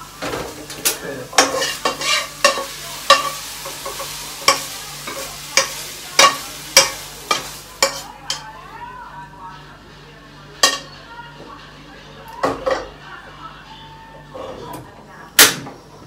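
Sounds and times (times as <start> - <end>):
steady sizzle: 0.0 - 11.3
spatula scraping a pan: 1.3 - 8.4.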